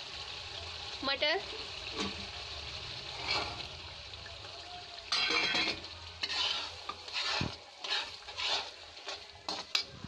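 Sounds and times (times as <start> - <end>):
faint sizzle: 0.0 - 10.0
metal spatula scraping a pan: 3.1 - 3.8, 5.1 - 10.0.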